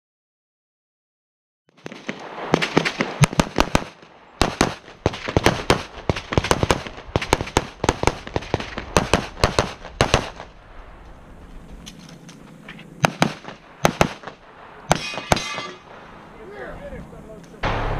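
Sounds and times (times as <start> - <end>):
pistol shots: 1.8 - 10.6, 13.0 - 16.3.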